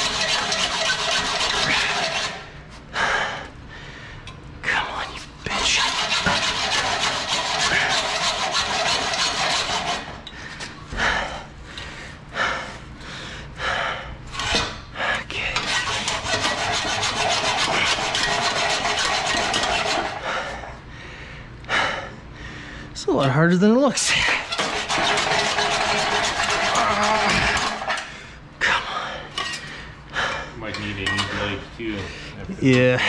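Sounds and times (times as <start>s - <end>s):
hacksaw cutting metal pipe: 0.0s - 2.5s, 5.5s - 10.3s, 14.4s - 14.8s, 15.6s - 20.2s, 24.2s - 28.1s.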